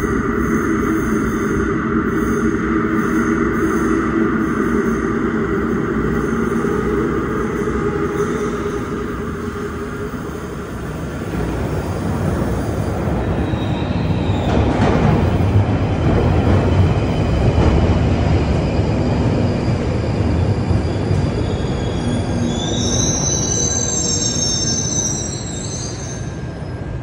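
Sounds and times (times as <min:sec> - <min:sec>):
train rumbling: 0:00.0 - 0:27.0
high-pitched wheel squeal: 0:20.6 - 0:26.8.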